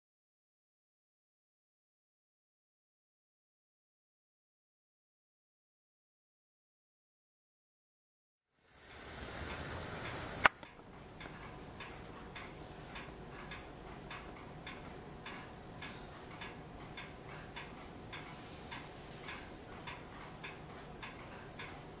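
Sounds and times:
faint hum: 8.6 - 22.0
regular ticking: 8.8 - 22.0.

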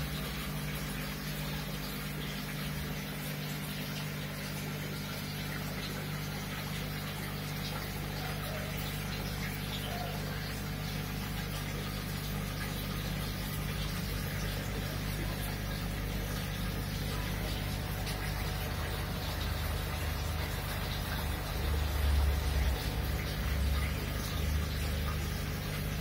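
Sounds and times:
aquarium pump humming: 0.0 - 26.0
water bubbling: 10.5 - 26.0.

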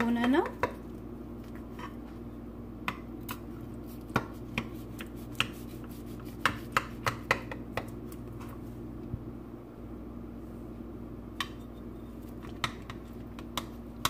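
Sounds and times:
steady low hum: 0.0 - 14.0
utensil tapping a baking dish: 4.1 - 8.0.

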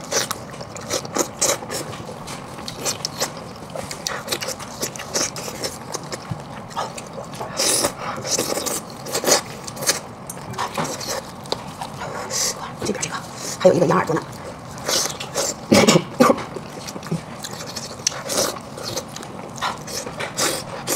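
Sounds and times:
chewing and wet mouth smacks: 0.0 - 13.4, 16.4 - 20.9.

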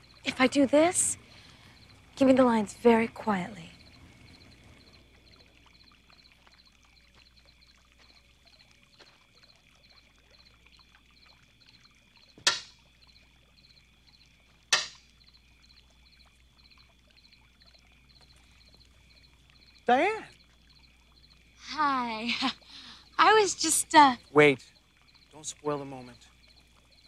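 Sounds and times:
crickets chirping: 0.0 - 27.0
sharp taps: 12.4 - 12.8, 14.7 - 15.0.

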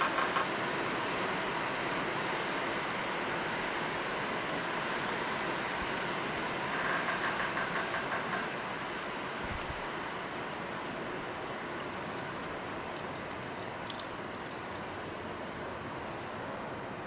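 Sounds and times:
steady rushing noise: 0.0 - 17.0.

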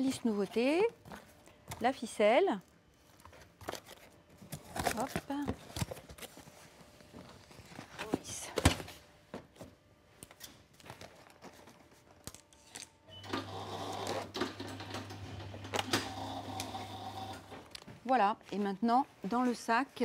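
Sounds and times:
strapping machine humming: 13.2 - 17.6.

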